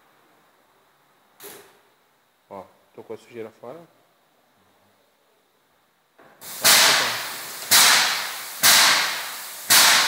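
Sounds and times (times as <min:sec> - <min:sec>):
paint sprayer pump hissing: 0:06.4 - 0:10.0.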